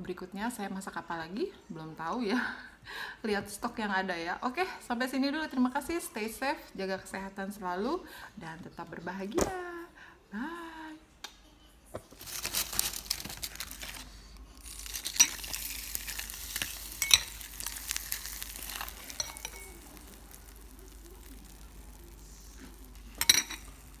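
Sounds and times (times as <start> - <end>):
crackers crackling and fizzing: 12.1 - 24.0
spoon clicking on bowl: 17.0 - 17.4, 19.1 - 19.8.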